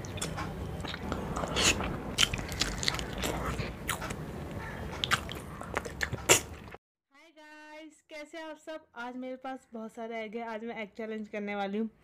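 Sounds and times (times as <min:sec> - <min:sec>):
biting and chewing: 0:00.0 - 0:06.8
mouth clicks and smacks: 0:04.8 - 0:06.8.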